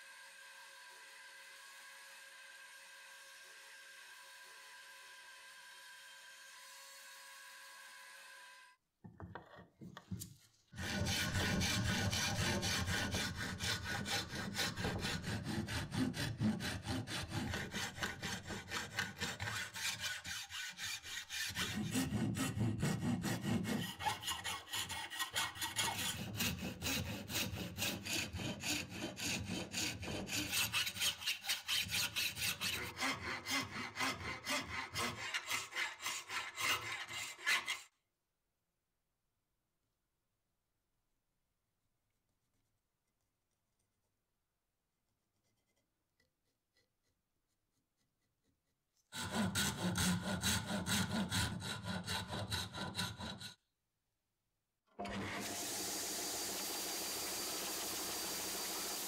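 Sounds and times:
hand saw cutting wood: 10.2s - 37.9s, 49.0s - 53.6s, 55.0s - 59.0s
file rasping wood: 10.7s - 37.9s, 45.4s - 53.6s
bandsaw motor humming: 55.0s - 59.0s.

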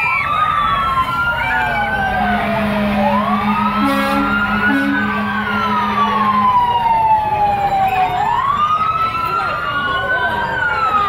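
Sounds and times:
fire engine siren wailing: 0.0s - 11.0s
steady low drone: 1.6s - 8.6s.

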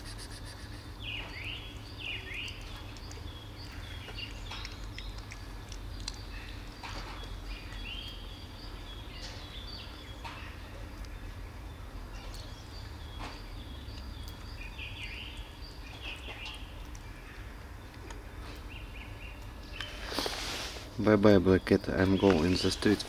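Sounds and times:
cat chewing and licking: 0.0s - 9.1s
small birds chirping: 0.0s - 23.0s.

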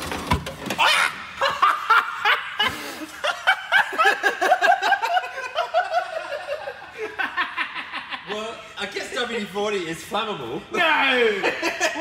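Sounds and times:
person giggling: 11.2s - 12.0s.

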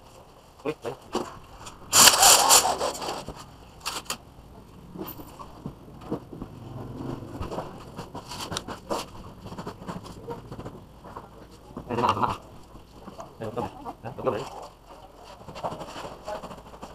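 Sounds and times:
loud scrape: 1.9s - 4.0s.

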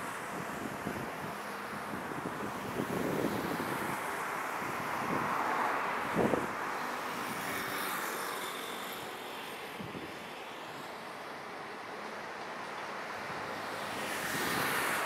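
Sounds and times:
wind on microphone: 0.0s - 7.5s, 9.7s - 10.2s.

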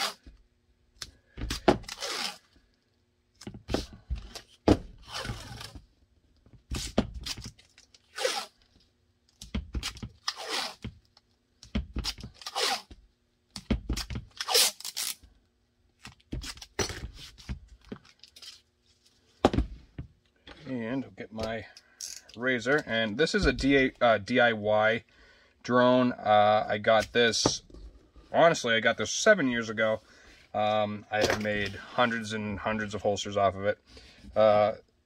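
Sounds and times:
tape ripping off a roll: 0.0s - 0.3s, 1.5s - 2.5s, 5.0s - 5.8s, 6.7s - 8.7s, 9.7s - 10.9s, 11.9s - 13.0s, 13.9s - 15.3s
faint steady hum: 0.0s - 35.0s.

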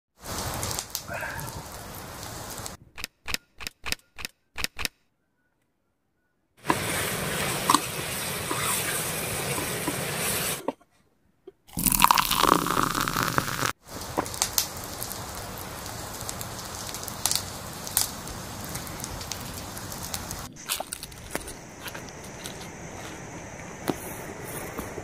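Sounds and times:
campfire crackling: 0.2s - 2.8s, 6.6s - 10.6s, 11.7s - 25.0s
hiss with sharp crackles: 0.2s - 2.8s, 6.6s - 10.6s, 11.7s - 25.0s
steady hiss: 0.2s - 2.8s, 6.6s - 10.6s, 11.8s - 25.0s.

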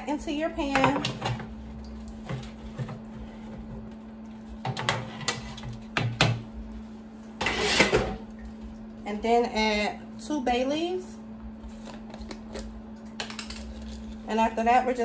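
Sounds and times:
steady hum: 0.0s - 15.0s
food scraping off cutting board: 7.4s - 8.2s.

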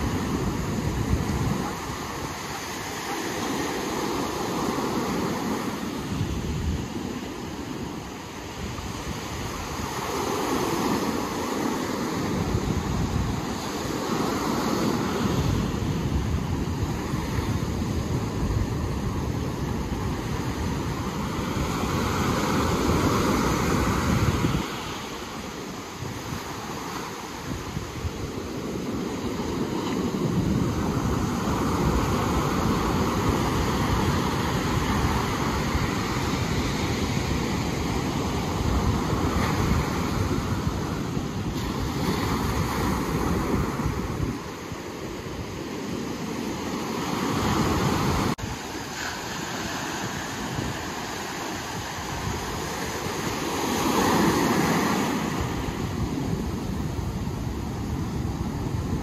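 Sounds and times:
ocean waves breaking: 0.0s - 59.0s
wind rumbling on microphone: 0.0s - 59.0s.

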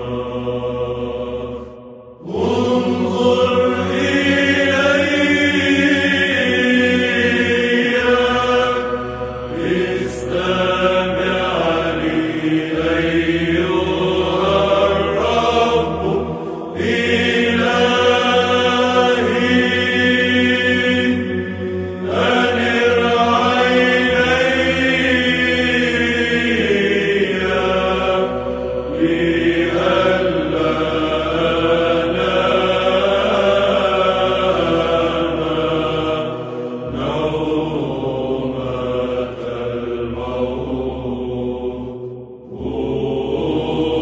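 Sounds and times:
church chant: 0.0s - 44.0s.

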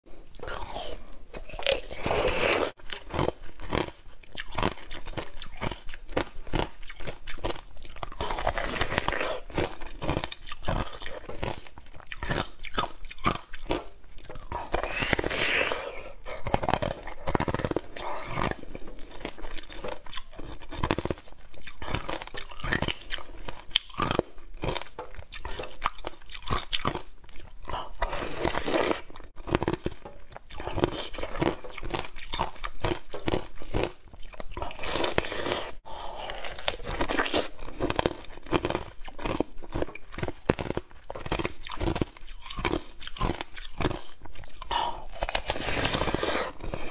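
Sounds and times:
crunchy bites and chewing: 0.2s - 46.9s.

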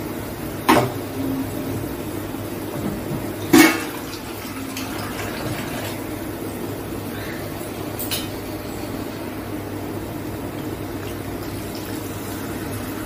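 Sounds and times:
sauce bubbling and hissing in pan: 9.3s - 13.0s.

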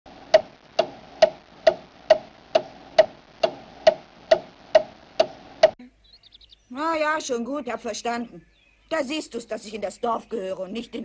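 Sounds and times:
clock ticking: 0.3s - 5.8s.

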